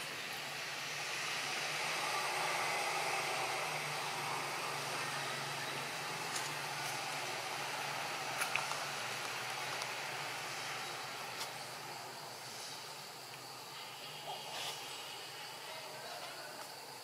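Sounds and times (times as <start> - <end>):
steady rushing noise: 0.0 - 15.9.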